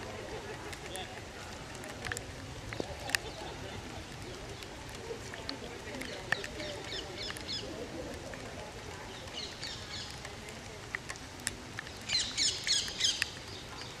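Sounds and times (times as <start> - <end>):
songbirds chirping and singing: 11.8 - 14.0.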